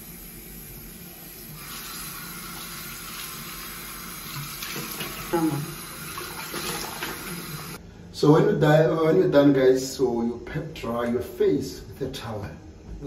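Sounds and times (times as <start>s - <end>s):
tap running into sink: 4.3s - 5.4s.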